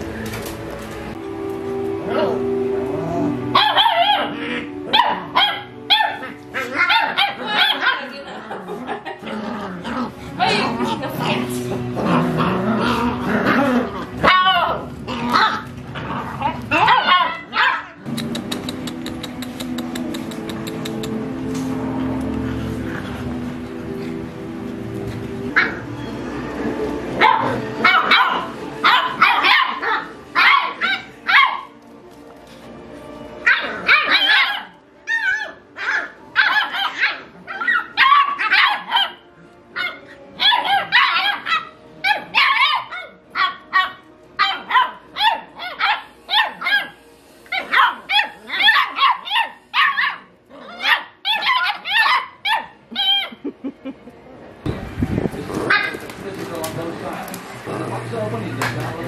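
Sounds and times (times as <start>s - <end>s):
puppies barking and yipping: 3.2s - 9.4s, 10.2s - 26.3s, 27.1s - 31.8s, 33.4s - 53.5s.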